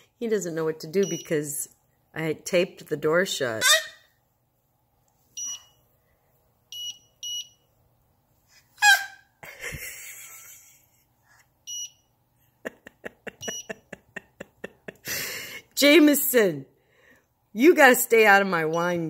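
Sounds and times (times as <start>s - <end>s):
baby squealing: 8.8s - 9.3s.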